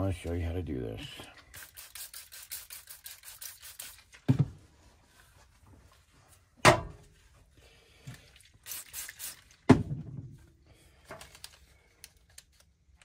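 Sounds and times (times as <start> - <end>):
thump: 4.3 - 4.6, 6.6 - 7.0, 9.7 - 10.4.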